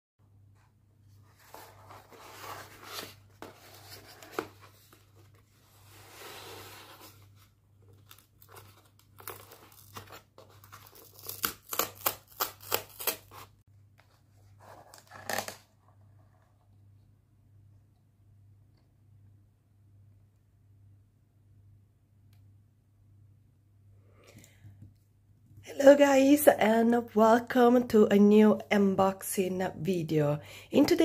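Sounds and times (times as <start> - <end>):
cardboard box scraping and rustling: 1.3 - 7.4.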